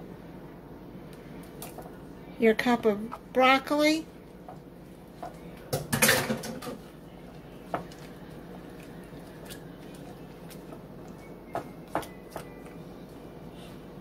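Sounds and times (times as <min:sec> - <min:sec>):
spoon stirring in a bowl: 0:06.5 - 0:13.8.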